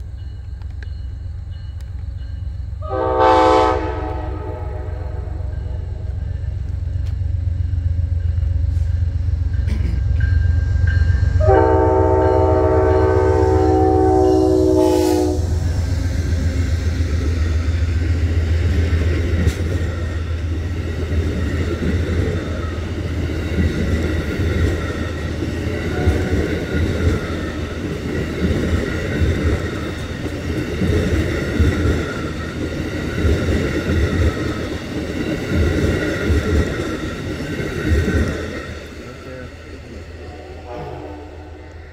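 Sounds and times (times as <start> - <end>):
diesel locomotive rumbling: 0.0 - 41.9
train cars rolling on rails: 0.0 - 41.9
train horn blast: 2.8 - 6.2, 11.4 - 15.6, 25.8 - 26.6, 40.2 - 41.9.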